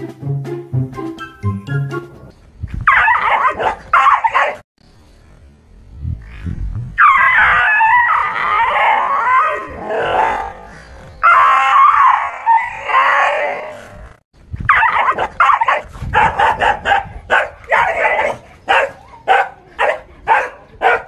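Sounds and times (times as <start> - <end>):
dog barking rapidly: 2.9 - 4.6, 14.7 - 21.0
dog wavering cries: 2.9 - 4.6, 14.7 - 15.8.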